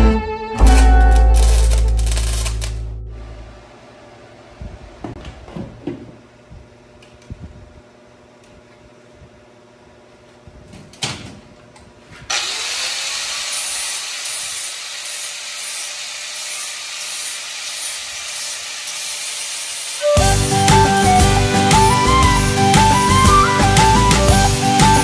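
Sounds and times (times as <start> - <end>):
music: 0.0 - 3.4, 20.0 - 25.0
angle grinder grinding metal: 12.3 - 20.2.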